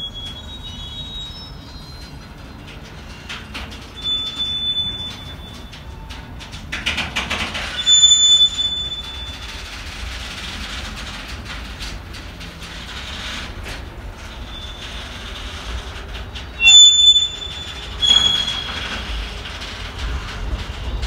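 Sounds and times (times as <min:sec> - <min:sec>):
high wheel squeals: 0:00.0 - 0:06.2, 0:07.6 - 0:10.1, 0:14.3 - 0:19.8
train wagons rumbling: 0:00.0 - 0:21.0
wheels clicking over rail joints: 0:00.1 - 0:21.0.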